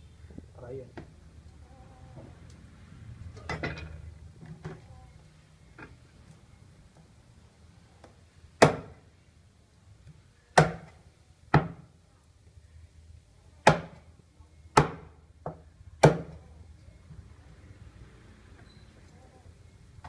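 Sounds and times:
cleaver chopping on wooden block: 0:08.6 - 0:08.9, 0:14.8 - 0:16.3.

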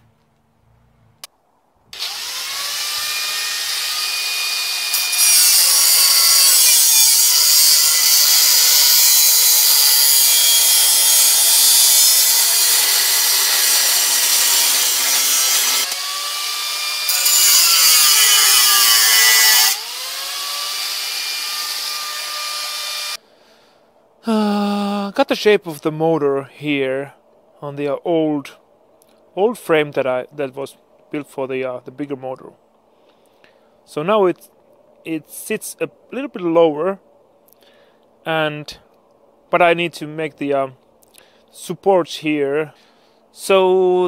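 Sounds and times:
angle grinder grinding steel: 0:02.0 - 0:23.2.

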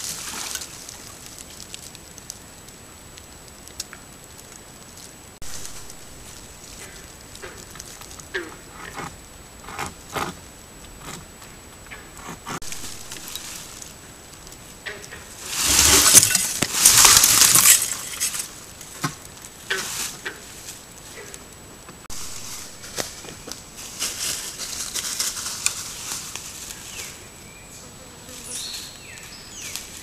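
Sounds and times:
brush rustling and scraping: 0:04.9 - 0:11.3, 0:11.9 - 0:27.3, 0:28.2 - 0:30.0.

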